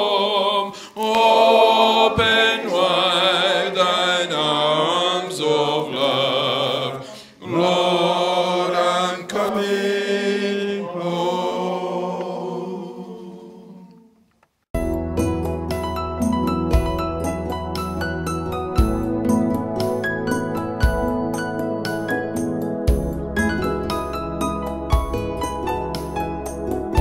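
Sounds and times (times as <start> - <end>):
men singing a hymn: 0.0 - 14.0.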